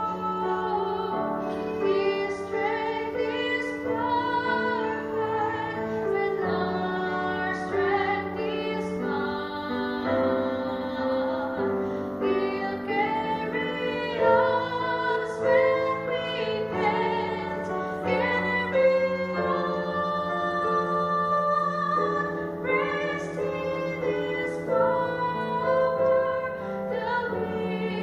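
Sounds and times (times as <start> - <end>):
piano accompaniment: 0.0 - 28.0
woman singing: 0.0 - 28.0.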